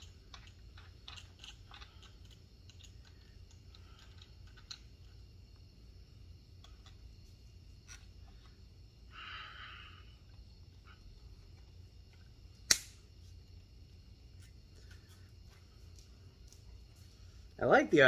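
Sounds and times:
small metal and plastic clicks: 0:00.0 - 0:04.9
low steady hum: 0:00.0 - 0:18.0.

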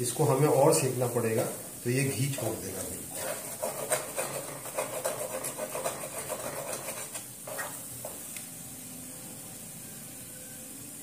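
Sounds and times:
faint sizzle: 0:00.0 - 0:11.0
wooden spatula scraping a pan: 0:02.6 - 0:08.3.

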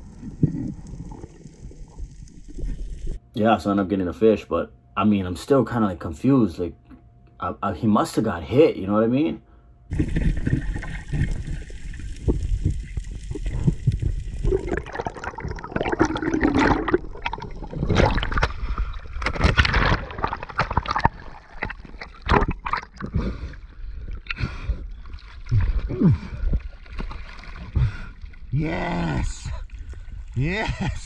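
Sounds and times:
water sloshing and splashing: 0:09.9 - 0:28.6.

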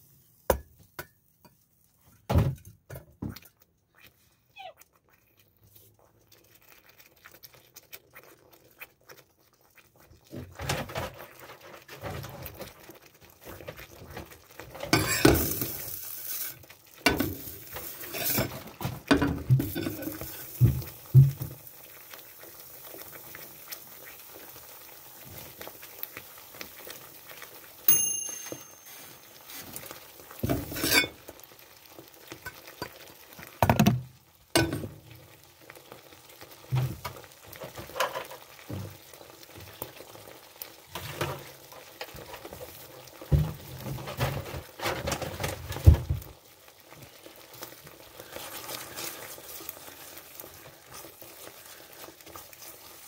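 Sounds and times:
meatballs sizzling in pan: 0:06.2 - 0:53.0
utensil knocking and scraping pan: 0:17.1 - 0:21.6, 0:30.4 - 0:31.2.

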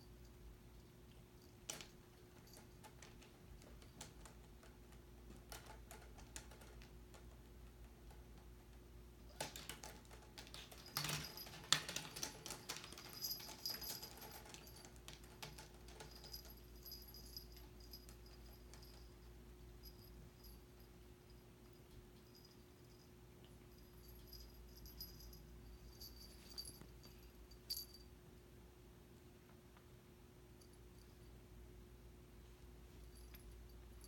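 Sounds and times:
rustling and paw patter: 0:09.3 - 0:19.1, 0:25.9 - 0:27.9.

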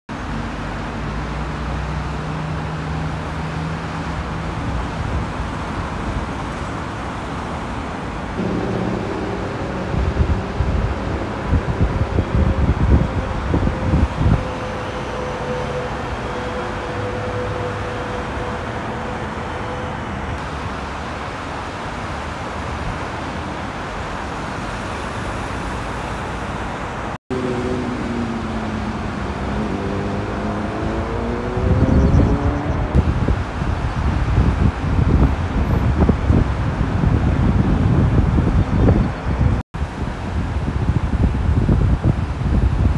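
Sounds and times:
dense freeway traffic roar: 0:00.1 - 0:42.9
wind buffeting microphone: 0:08.3 - 0:16.2, 0:27.6 - 0:42.9
engine tone rising in pitch: 0:08.4 - 0:20.3, 0:27.3 - 0:33.0.

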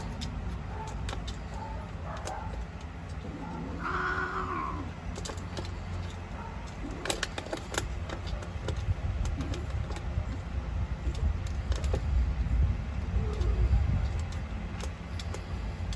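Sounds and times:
low steady rumble: 0:00.0 - 0:15.9
cat yowling: 0:03.3 - 0:04.9.

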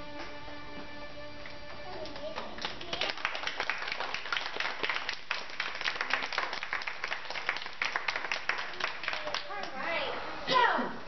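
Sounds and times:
small group applauding: 0:01.9 - 0:09.8.

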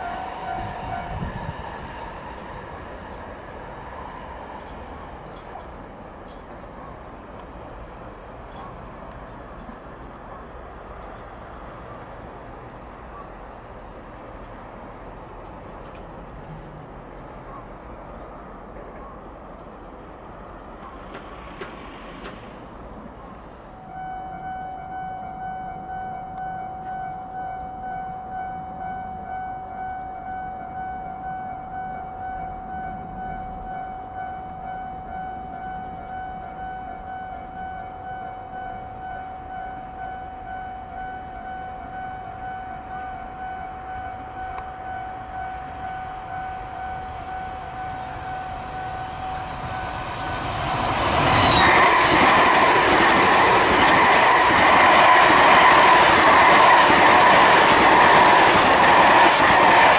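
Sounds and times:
level crossing warning bell: 0:00.0 - 0:01.4, 0:23.2 - 0:59.9
train running: 0:00.0 - 0:59.9.

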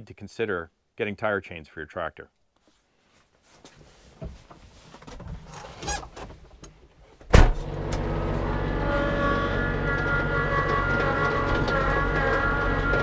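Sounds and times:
cab door shutting: 0:07.3 - 0:08.1
tractor diesel engine running: 0:07.5 - 0:13.0.

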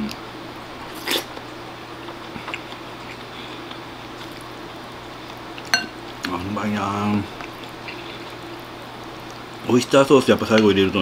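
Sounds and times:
steady low hum: 0:00.0 - 0:09.9
quiet chewing: 0:01.0 - 0:04.5, 0:07.3 - 0:09.5.

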